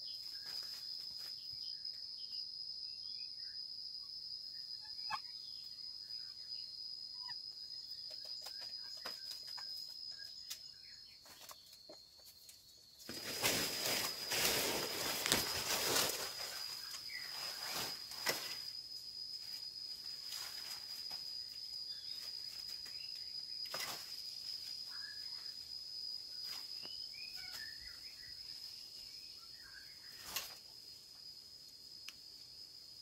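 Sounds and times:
rustling of leaves and bamboo: 0:00.0 - 0:02.0, 0:08.2 - 0:33.0
high insect drone: 0:00.0 - 0:33.0
faint bird chirps: 0:26.4 - 0:30.6.

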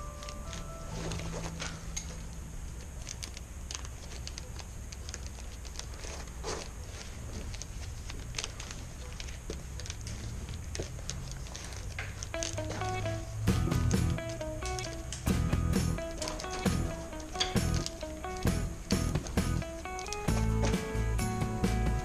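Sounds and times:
wicker rods crackling and creaking: 0:00.0 - 0:22.0
low steady hum: 0:12.4 - 0:22.0.

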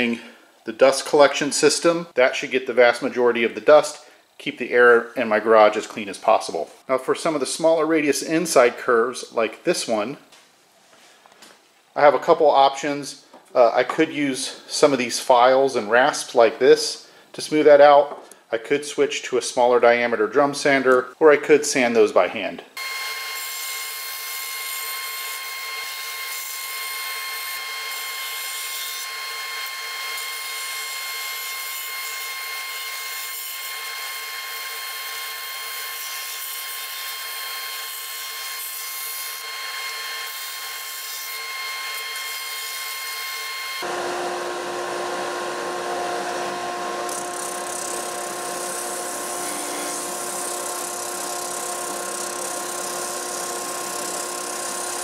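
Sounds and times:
disc sander whining: 0:22.8 - 0:55.0.

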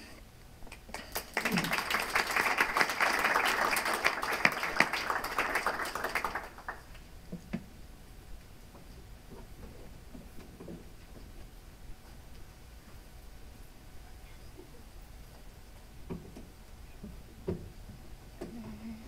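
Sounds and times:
audience applauding: 0:00.7 - 0:07.0.

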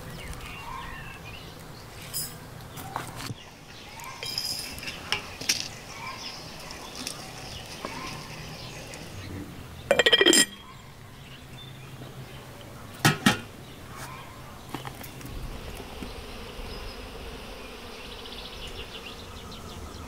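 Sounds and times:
sharp porcelain clinks: 0:04.2 - 0:04.7, 0:09.9 - 0:10.6
spoon clinking against teapot: 0:04.2 - 0:05.2, 0:09.9 - 0:10.6.

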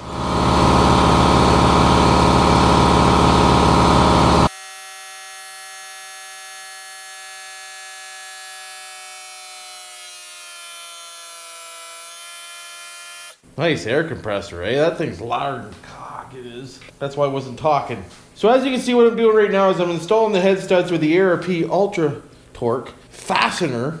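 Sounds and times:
air compressor running: 0:00.0 - 0:04.7.

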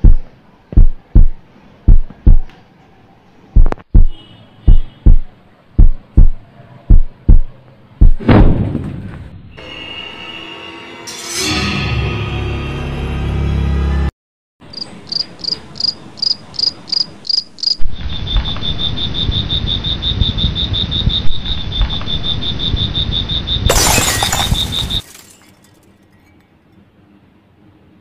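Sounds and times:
crickets chirping: 0:14.7 - 0:25.0.

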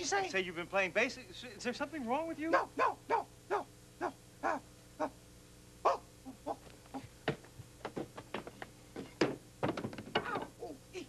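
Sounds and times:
person yelping like animal: 0:02.5 - 0:05.2, 0:05.8 - 0:07.1.

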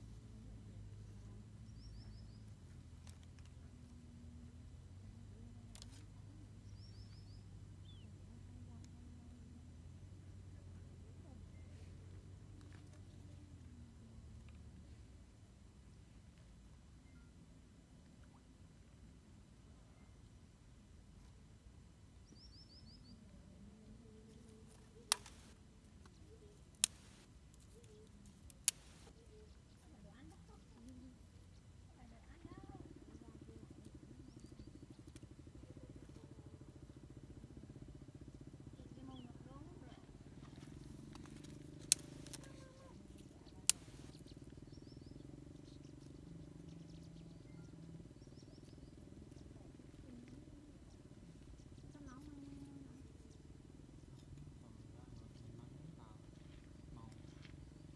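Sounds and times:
small bird chirping: 0:00.0 - 0:09.6, 0:22.2 - 0:57.9
twigs being handled: 0:05.7 - 0:06.0, 0:24.4 - 0:29.2, 0:40.4 - 0:44.3
stick snapping: 0:25.1 - 0:25.5, 0:26.6 - 0:29.1, 0:41.1 - 0:42.5, 0:43.2 - 0:44.2
sharp clicks with brief hiss: 0:26.8 - 0:27.3.

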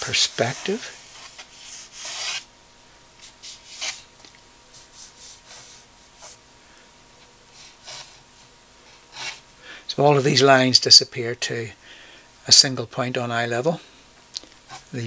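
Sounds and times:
pen scratching across paper: 0:00.1 - 0:02.5, 0:03.2 - 0:04.1, 0:04.7 - 0:06.4, 0:07.6 - 0:08.2, 0:09.1 - 0:09.4.

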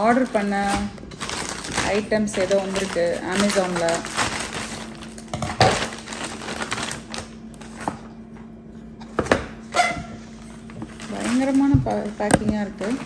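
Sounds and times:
package being opened by hand: 0:01.2 - 0:08.0.

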